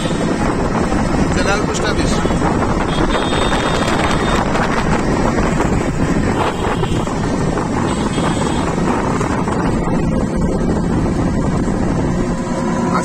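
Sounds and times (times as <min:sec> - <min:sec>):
road rumble: 0:00.0 - 0:13.0
wind buffeting microphone: 0:00.0 - 0:13.0.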